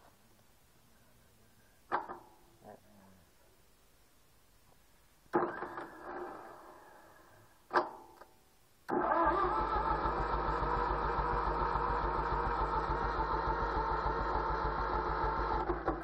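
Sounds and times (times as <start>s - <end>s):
engine cranking on starter: 5.3s - 7.0s, 8.9s - 16.0s.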